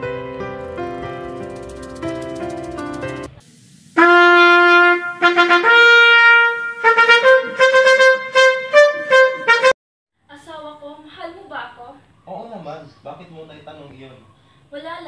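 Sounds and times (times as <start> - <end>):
trumpet fanfare: 4.0 - 9.8.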